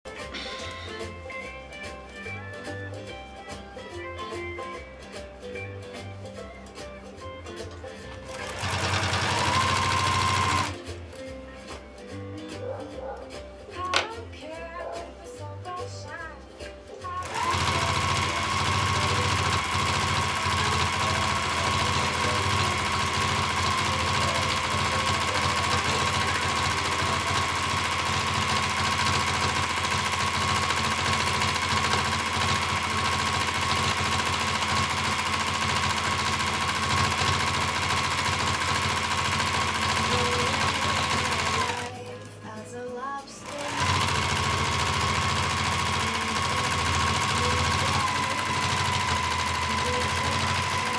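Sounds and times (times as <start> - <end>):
sewing machine stitching: 8.0 - 10.8, 17.2 - 42.3, 43.4 - 50.9.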